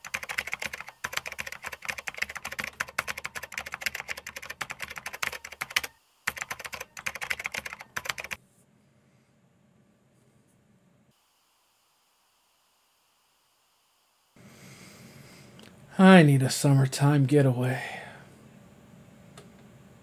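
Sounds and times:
typing on computer keyboard: 0:00.0 - 0:08.4
faint room hiss: 0:00.0 - 0:20.0.

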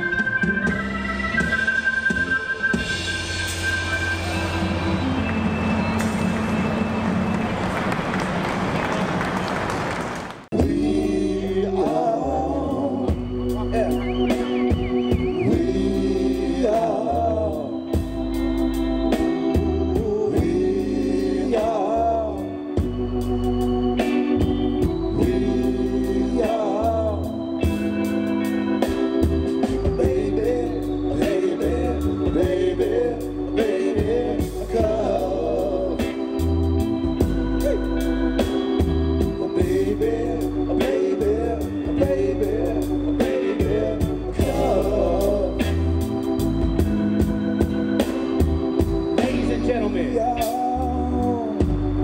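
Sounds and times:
sustained keyboard chords: 0:00.0 - 0:09.4, 0:10.5 - 0:52.0
bass: 0:00.0 - 0:52.0
drums: 0:00.0 - 0:52.0
male voices singing in harmony: 0:10.5 - 0:18.2, 0:19.8 - 0:22.8, 0:25.0 - 0:27.7, 0:29.8 - 0:36.5, 0:39.2 - 0:46.1, 0:49.2 - 0:51.8.

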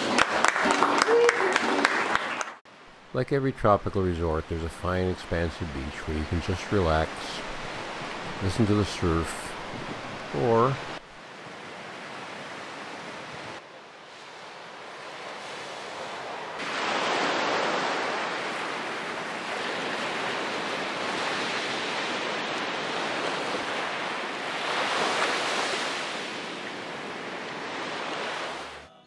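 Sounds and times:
ocean surf washing on beach: 0:02.7 - 0:28.9.

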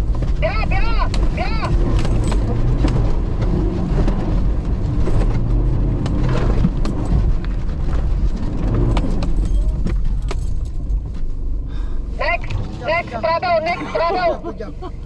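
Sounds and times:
knocks and rattles: 0:00.0 - 0:11.6
off-road vehicle engine running: 0:00.0 - 0:15.0.

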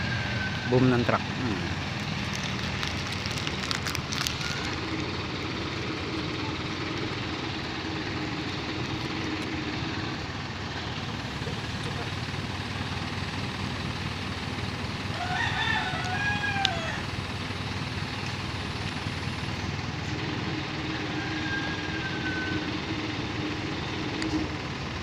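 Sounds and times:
rooster crowing: 0:00.0 - 0:01.2, 0:15.0 - 0:17.2, 0:20.6 - 0:23.1
truck engine running: 0:00.0 - 0:25.0.

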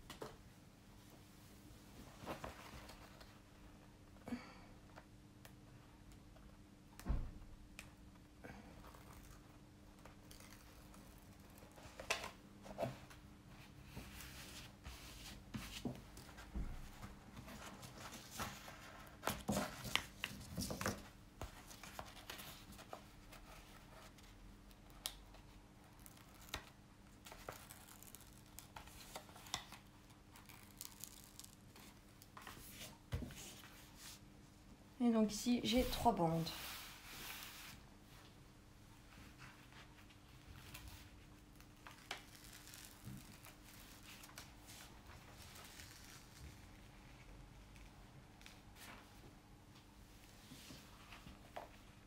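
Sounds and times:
canvas and film crinkling: 0:25.0 - 0:32.8, 0:39.6 - 0:47.0.

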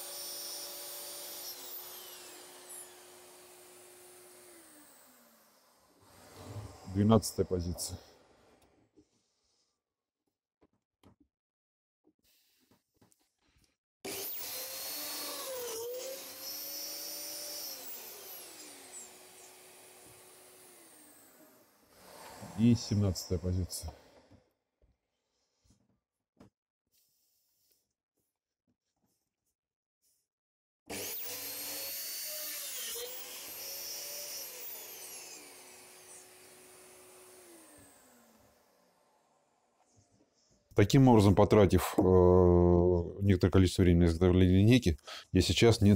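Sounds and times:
dowel drilling machine whining: 0:00.0 - 0:07.1, 0:14.1 - 0:24.1, 0:30.9 - 0:39.3.

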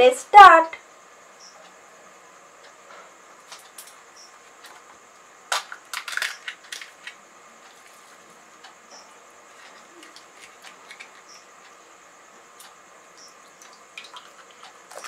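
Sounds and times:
crisp fried shell crackling: 0:05.5 - 0:07.2.

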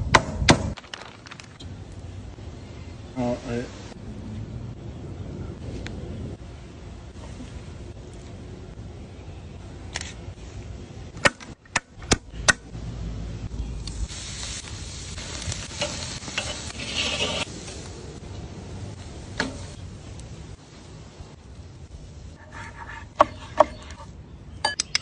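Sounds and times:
meat sizzling on a grill: 0:13.8 - 0:21.0.

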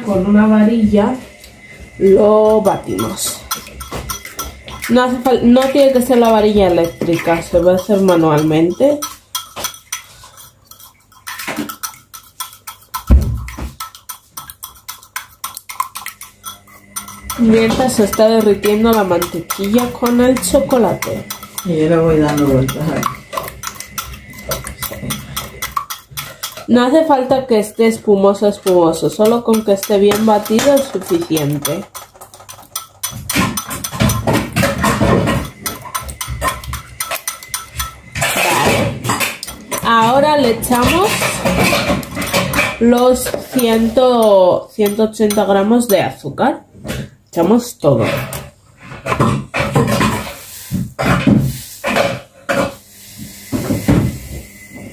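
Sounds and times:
wire whisk clicking against bowl: 0:02.4 - 0:26.8, 0:28.4 - 0:38.0, 0:42.5 - 0:46.0.

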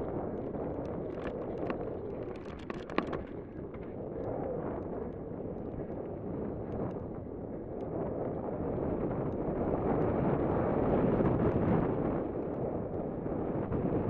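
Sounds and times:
wind rushing over microphone: 0:00.0 - 0:14.0
mountain bike rattling: 0:00.1 - 0:05.9.

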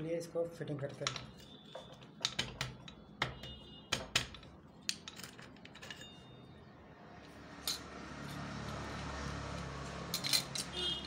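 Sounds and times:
metal clutch plates clinking: 0:01.0 - 0:06.5, 0:10.1 - 0:11.0.

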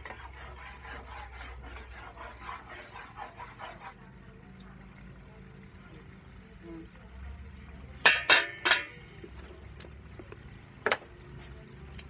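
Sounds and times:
rhythmic scraping strokes: 0:00.0 - 0:04.1.

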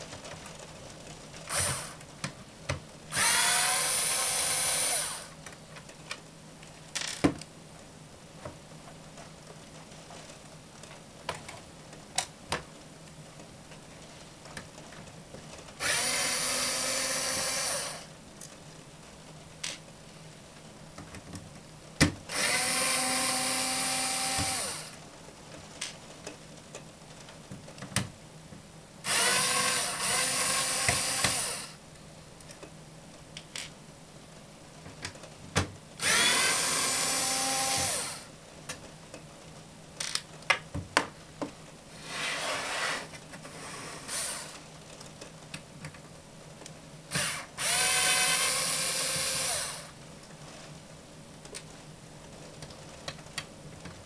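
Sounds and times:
cordless screwdriver whirring: 0:03.1 - 0:05.3, 0:15.8 - 0:18.0, 0:22.3 - 0:24.9, 0:29.1 - 0:31.7, 0:36.0 - 0:38.3, 0:47.1 - 0:49.9.

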